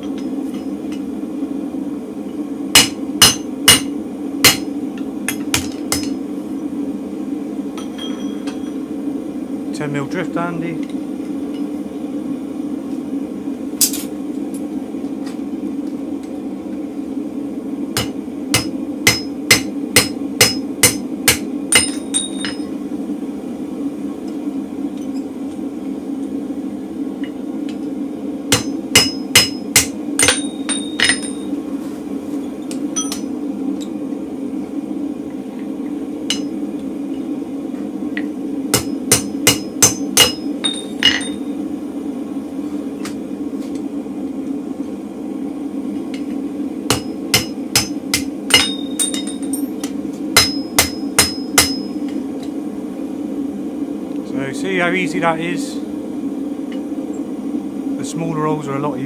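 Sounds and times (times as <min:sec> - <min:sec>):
steady low hum: 0:00.0 - 0:59.0
hammer ringing on metal: 0:50.4 - 0:51.9.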